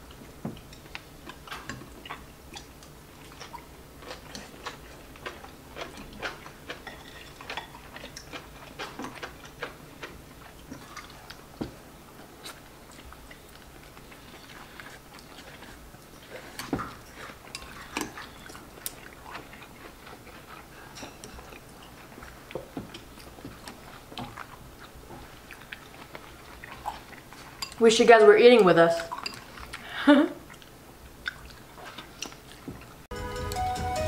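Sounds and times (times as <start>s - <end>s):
quiet chewing: 0.0s - 27.9s, 29.0s - 33.1s.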